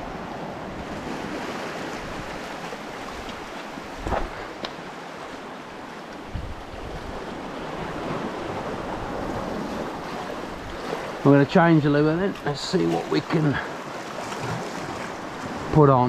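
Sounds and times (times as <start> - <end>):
surf breaking against rocks: 0.0 - 15.9
short thump: 4.0 - 4.5.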